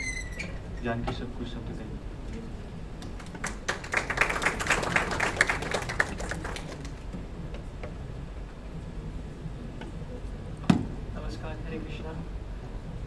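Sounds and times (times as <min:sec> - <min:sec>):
audience applauding: 0:03.1 - 0:07.1.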